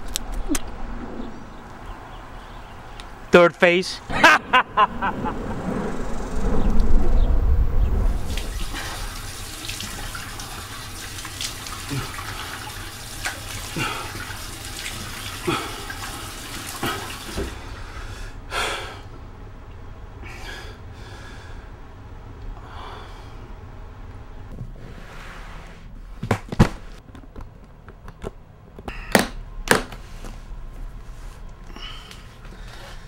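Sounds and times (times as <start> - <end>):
man splashing water on face: 8.3 - 17.6
tap water running into sink: 8.3 - 17.6.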